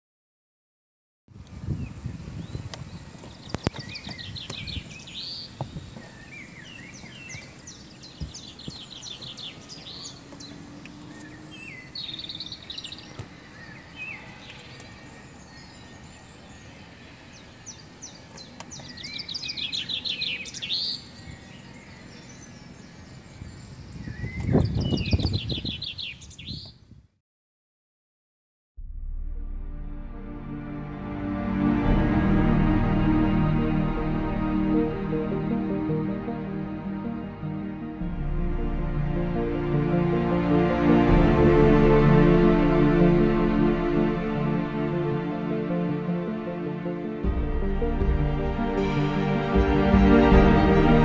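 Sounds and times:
outdoor background hiss: 0:01.3 - 0:24.1
songbirds singing trilled phrases: 0:01.7 - 0:26.8
low rumble: 0:28.8 - 0:51.0.

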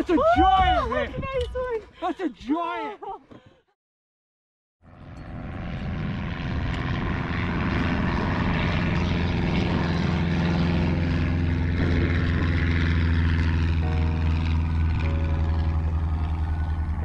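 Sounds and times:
propeller plane engine overhead: 0:04.8 - 0:17.0.

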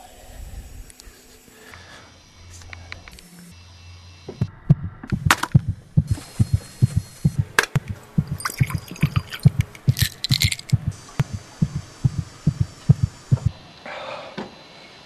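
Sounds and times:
heartbeat thumps: 0:04.3 - 0:13.6.

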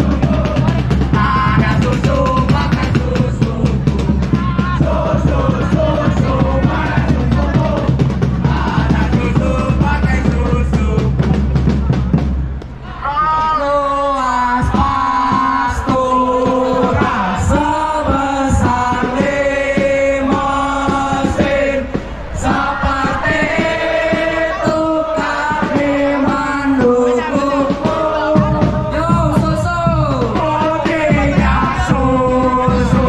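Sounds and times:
steady drum beat: 0:00.0 - 0:12.8, 0:14.6 - 0:33.0
person singing a melody: 0:12.9 - 0:33.0.

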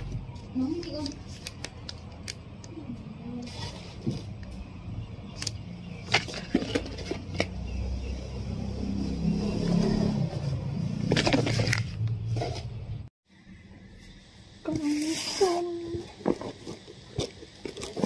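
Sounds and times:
vehicle engine running: 0:04.5 - 0:13.1.

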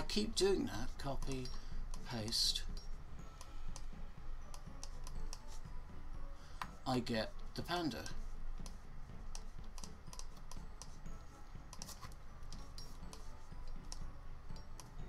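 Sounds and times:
keyboard and mouse clicking: 0:04.5 - 0:05.5, 0:08.6 - 0:11.0, 0:11.7 - 0:15.0.

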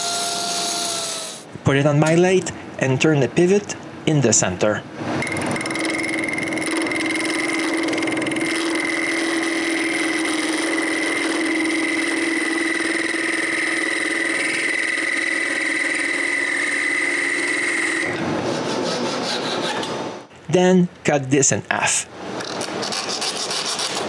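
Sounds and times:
wood lathe humming and whining: 0:00.0 - 0:01.4, 0:05.2 - 0:18.1.

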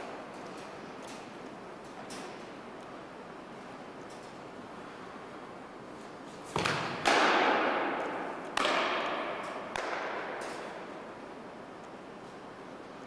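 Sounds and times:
softball striking with echo: 0:06.6 - 0:10.4.

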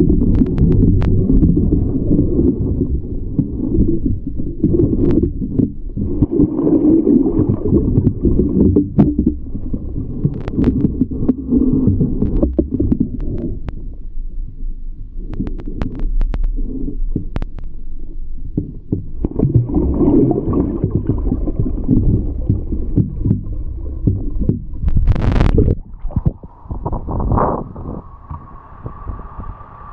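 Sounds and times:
muffled underwater churning: 0:00.0 - 0:29.9
water splash: 0:19.2 - 0:29.5.

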